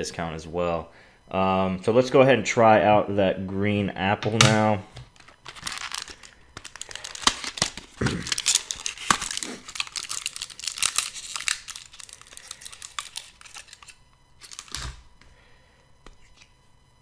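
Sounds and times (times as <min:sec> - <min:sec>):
packaging crinkling and tearing: 0:05.1 - 0:15.0.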